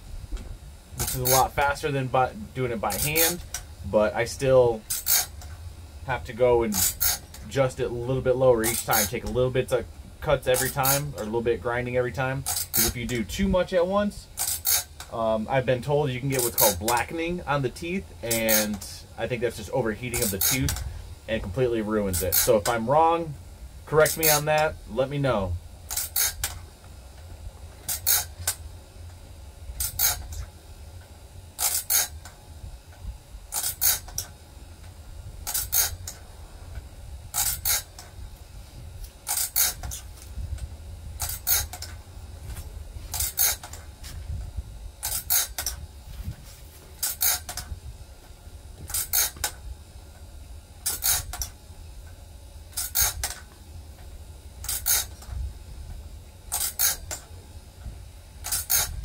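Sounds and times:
motor hum: 0:00.0 - 0:59.0
grinding wheel on blade: 0:01.0 - 0:26.6, 0:27.8 - 0:28.6, 0:29.7 - 0:30.5, 0:31.5 - 0:32.4, 0:33.5 - 0:34.3, 0:35.4 - 0:36.2, 0:37.3 - 0:38.1, 0:39.1 - 0:40.3, 0:41.2 - 0:42.0, 0:43.1 - 0:43.8, 0:45.0 - 0:45.8, 0:46.9 - 0:47.6, 0:48.8 - 0:49.6, 0:50.8 - 0:51.6, 0:52.7 - 0:53.4, 0:54.6 - 0:55.3, 0:56.4 - 0:57.3, 0:58.4 - 0:59.0.

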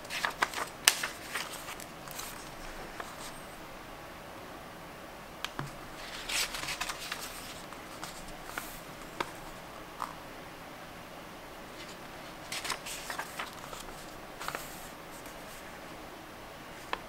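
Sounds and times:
paper pages rustling: 0:00.0 - 0:03.5, 0:05.6 - 0:10.2, 0:11.8 - 0:15.8.

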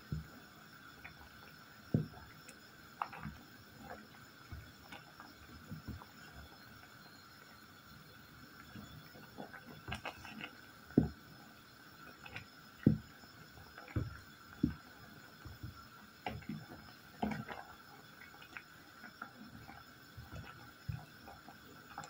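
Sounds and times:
water bubbling: 0:12.1 - 0:22.0.

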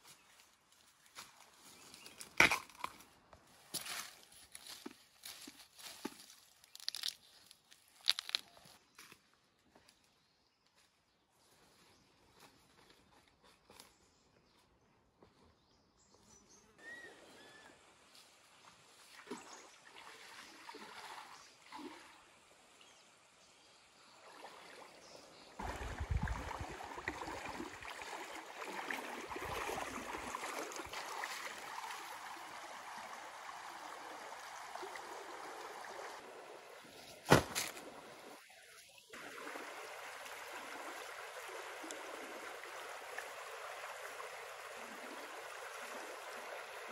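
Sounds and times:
stream running over rocks: 0:17.9 - 0:46.9
person wading and splashing: 0:18.9 - 0:22.3, 0:25.6 - 0:33.4.

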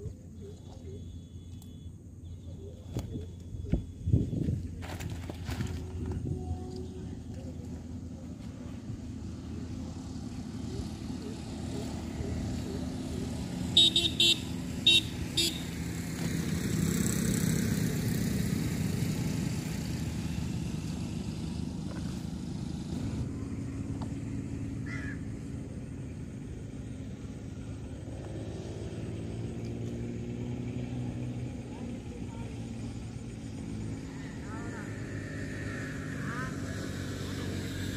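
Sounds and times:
vehicle engine running: 0:00.0 - 0:37.9
vehicle passing by: 0:04.2 - 0:37.9
horn tooting: 0:13.5 - 0:16.0.

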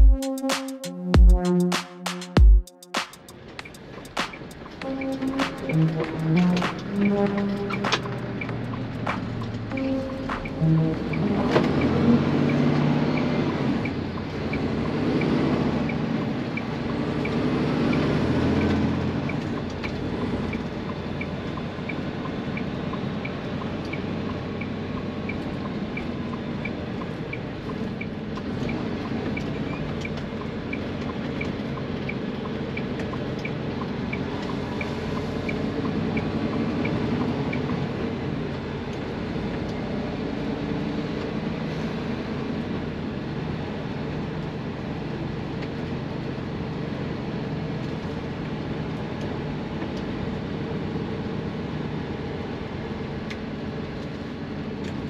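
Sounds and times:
steady high ticking: 0:00.0 - 0:12.6
truck diesel engine: 0:03.2 - 0:55.0.

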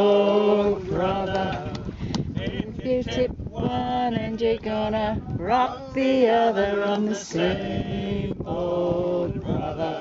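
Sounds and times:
man singing: 0:02.4 - 0:10.0.

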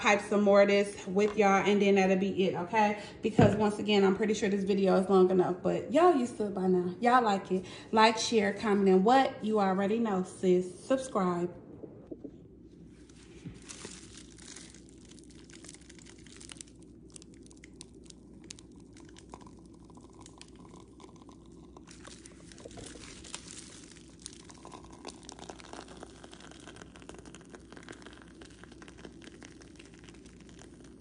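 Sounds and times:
faint steady hum: 0:00.0 - 0:31.0
plastic piping bag crinkling: 0:13.0 - 0:31.0.

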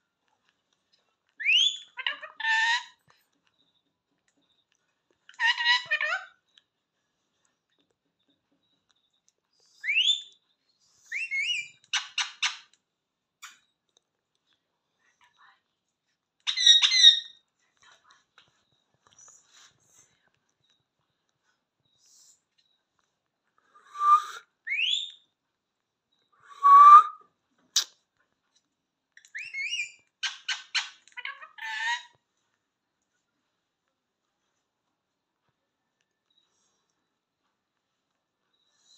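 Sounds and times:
parakeet whistles and calls: 0:01.4 - 0:03.0, 0:05.4 - 0:06.3, 0:09.7 - 0:10.4, 0:11.0 - 0:12.7, 0:16.5 - 0:17.4, 0:23.8 - 0:25.3, 0:29.2 - 0:32.1
parakeet squawks: 0:05.4 - 0:06.3, 0:16.5 - 0:17.3, 0:29.4 - 0:32.1
parakeet whistling: 0:23.9 - 0:25.2.

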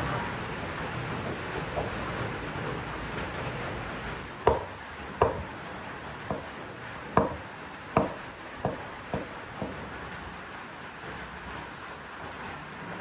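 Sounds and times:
rain hiss: 0:00.0 - 0:13.0
knife chopping on wooden board: 0:04.5 - 0:05.6, 0:06.3 - 0:09.9.

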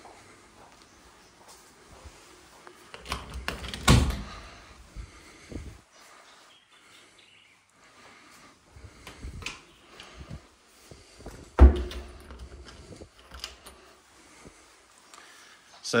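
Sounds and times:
door shutting with a thump: 0:11.6 - 0:12.4.

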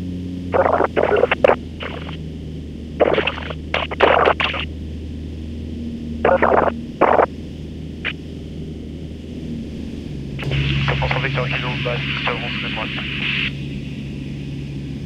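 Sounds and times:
light aircraft engine droning: 0:00.0 - 0:15.0
voice over headset radio: 0:00.6 - 0:02.2, 0:10.4 - 0:13.5.

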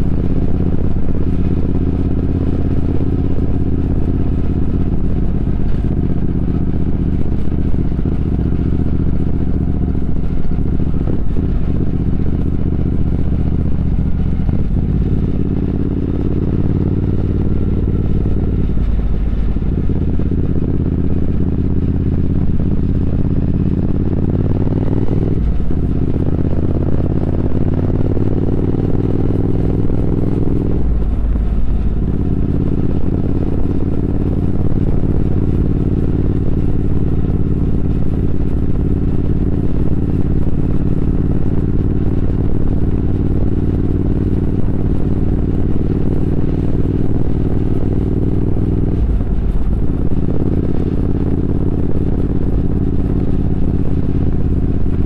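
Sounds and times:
motorcycle engine shifting gears: 0:00.0 - 0:55.0.

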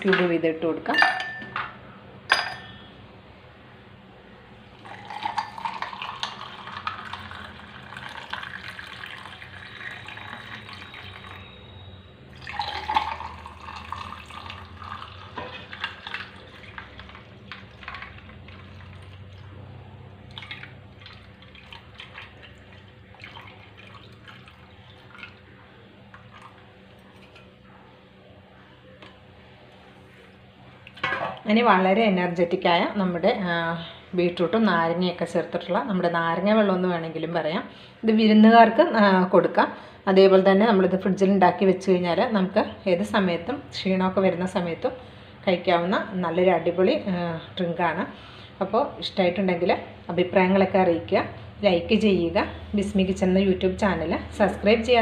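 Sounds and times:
glass clinks: 0:00.9 - 0:01.6, 0:02.3 - 0:02.8
drink fizzing: 0:04.7 - 0:11.6, 0:12.3 - 0:19.6, 0:20.2 - 0:25.5
drink pouring into glass: 0:04.8 - 0:11.6, 0:12.3 - 0:19.5, 0:20.3 - 0:25.5.

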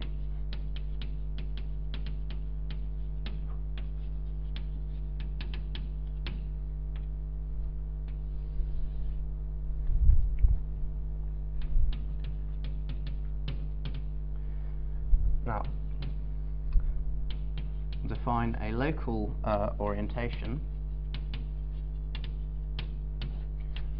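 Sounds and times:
chalk tapping on blackboard: 0:00.0 - 0:07.1, 0:11.6 - 0:14.2, 0:15.6 - 0:16.2, 0:17.2 - 0:18.6, 0:20.0 - 0:23.9
electrical hum: 0:00.0 - 0:23.9
dull low thumps: 0:07.4 - 0:12.3, 0:13.3 - 0:18.6.

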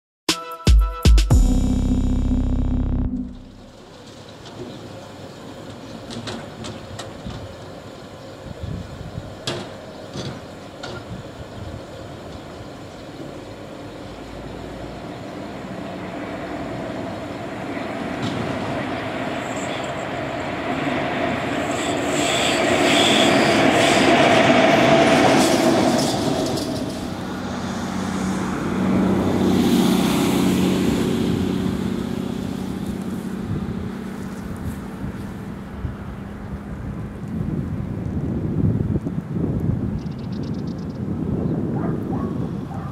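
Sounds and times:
steady locomotive whine: 0:01.6 - 0:05.8, 0:11.2 - 0:29.4
electric locomotive passing: 0:03.4 - 0:37.9
wheels on rails: 0:16.1 - 0:27.4.

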